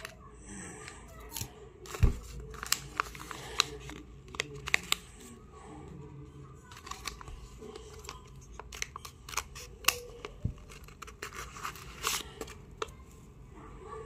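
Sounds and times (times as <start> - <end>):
paper crackling and tearing: 1.3 - 5.3, 6.7 - 12.6.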